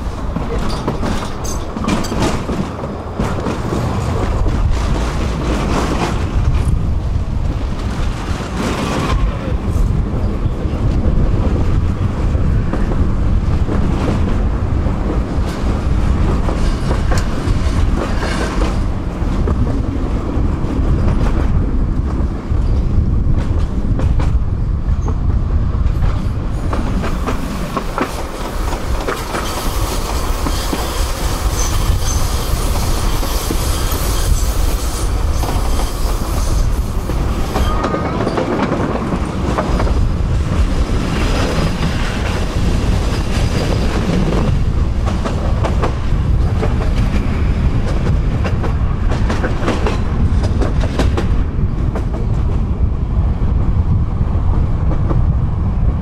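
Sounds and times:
wheels clicking over rail joints: 0.0s - 11.6s, 25.9s - 52.8s
tram rumbling on rails: 0.0s - 56.0s
tram wheel squeals: 26.0s - 50.6s.

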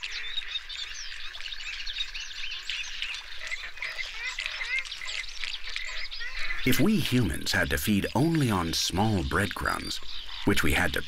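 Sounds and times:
flamingos honking: 3.3s - 11.0s.

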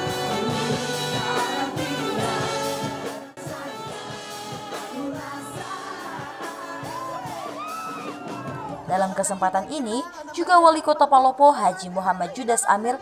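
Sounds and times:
band playing: 0.0s - 10.0s
woman singing into a microphone: 1.0s - 7.9s.

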